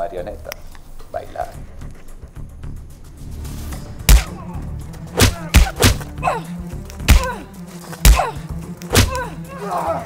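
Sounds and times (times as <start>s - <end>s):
background music: 0.0s - 10.0s
punch and kick impacts: 4.0s - 4.4s, 5.2s - 6.1s, 7.0s - 7.4s, 8.0s - 9.3s.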